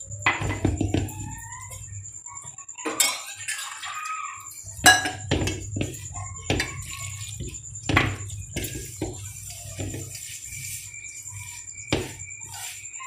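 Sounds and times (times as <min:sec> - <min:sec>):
knocks and clinks on metal bowl: 0:00.2 - 0:01.4, 0:04.7 - 0:10.2.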